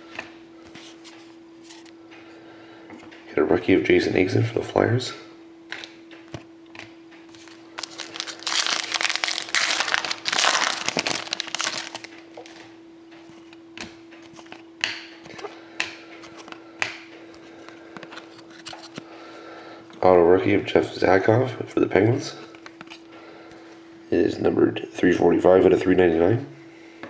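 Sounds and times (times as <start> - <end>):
faint steady hum: 0.0 - 27.0
plastic wrapping crinkling: 7.3 - 12.7.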